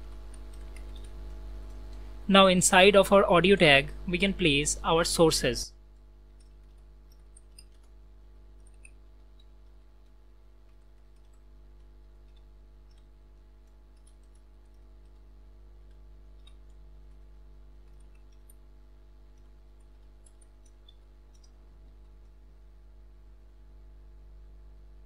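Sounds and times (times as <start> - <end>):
keyboard typing clicks: 0.0 - 2.1, 5.9 - 18.7, 19.3 - 22.6
low electrical hum: 0.0 - 25.0.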